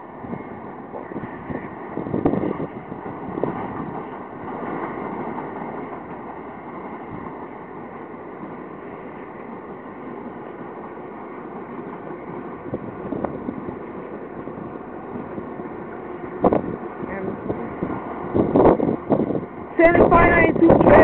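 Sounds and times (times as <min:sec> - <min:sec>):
electric train running past: 0:00.0 - 0:21.0
wind on microphone: 0:00.1 - 0:07.4, 0:12.3 - 0:21.0
train bumps: 0:00.2 - 0:07.8.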